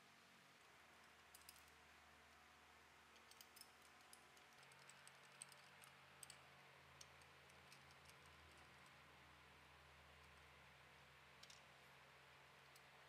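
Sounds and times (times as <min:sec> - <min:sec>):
light metal clicks and ticks: 0:01.0 - 0:02.4, 0:03.1 - 0:09.0, 0:11.4 - 0:11.9, 0:12.6 - 0:13.0.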